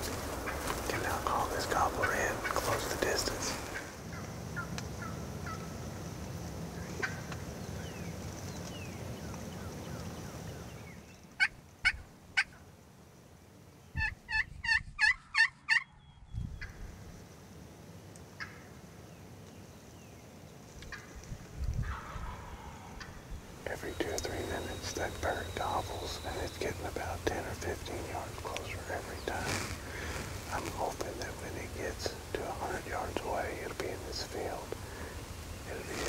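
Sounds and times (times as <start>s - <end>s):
turkey gobbling: 14.0s - 15.9s, 21.8s - 23.2s.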